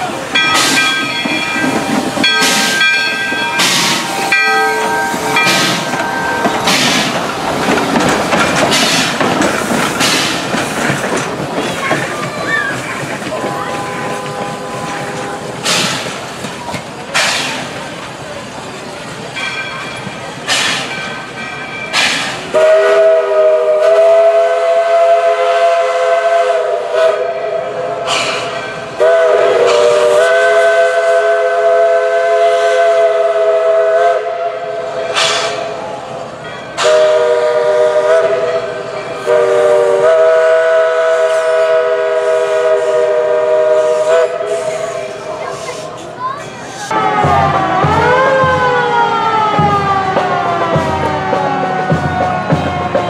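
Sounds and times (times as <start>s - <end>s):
locomotive chime whistle: 0.2s - 6.9s, 21.4s - 35.6s, 36.6s - 45.7s.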